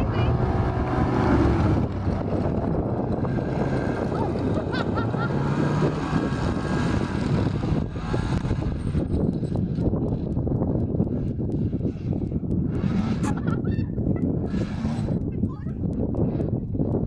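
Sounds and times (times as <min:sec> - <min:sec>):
snowmobile engine driving off: 0:00.0 - 0:16.5.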